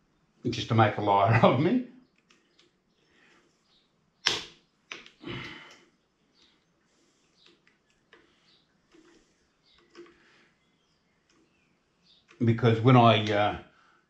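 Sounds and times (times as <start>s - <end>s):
screwdriver rasping: 7.4s - 10.2s
small ticks: 7.4s - 10.5s.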